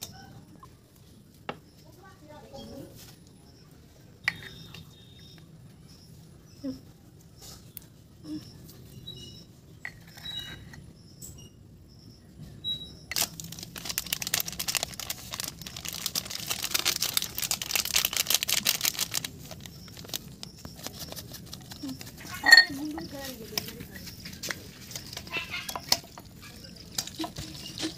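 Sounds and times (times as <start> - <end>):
plastic sachet crinkling: 13.1 - 23.6, 26.8 - 27.9.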